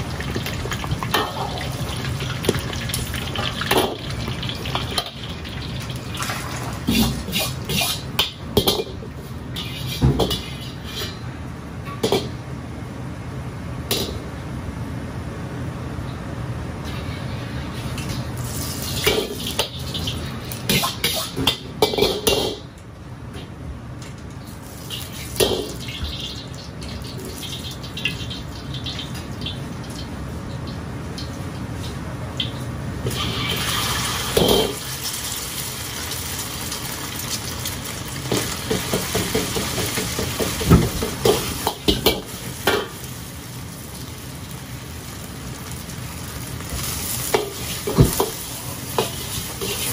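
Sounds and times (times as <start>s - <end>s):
oil sizzling: 0.0s - 11.2s, 16.8s - 22.4s, 24.2s - 49.9s
gas burner roaring: 0.0s - 49.9s
ladle scraping wok: 6.8s - 11.3s, 46.8s - 49.9s.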